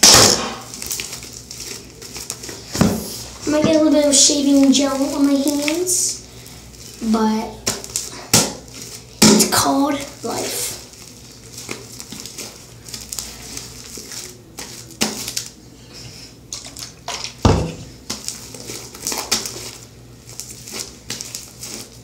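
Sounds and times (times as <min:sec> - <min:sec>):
sharp impacts: 0:00.0 - 0:00.7
slime squishing and crackling: 0:00.0 - 0:15.8, 0:16.4 - 0:22.0.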